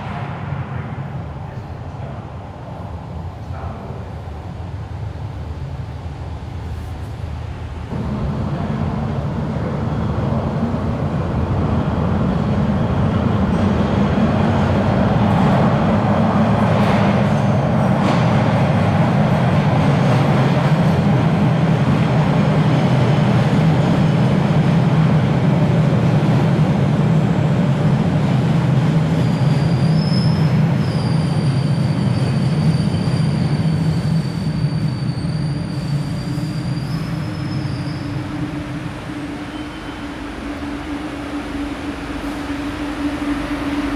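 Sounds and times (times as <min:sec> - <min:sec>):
subway train rumbling: 0:00.0 - 0:43.9
wheels and brakes squealing: 0:29.0 - 0:40.2.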